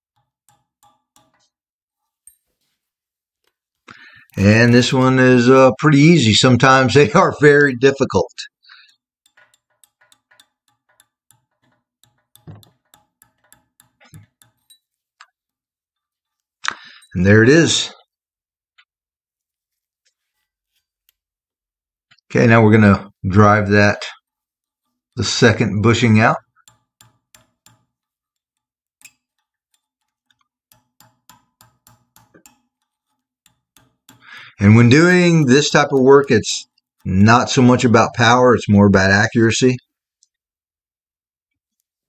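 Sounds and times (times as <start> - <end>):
hammer tapping on metal punch: 0.1 - 1.6, 8.8 - 14.9, 26.4 - 36.8.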